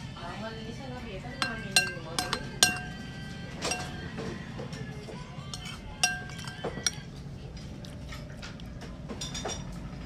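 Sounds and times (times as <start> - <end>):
metal spoon clinking against bowl: 1.4 - 4.1, 5.4 - 7.2.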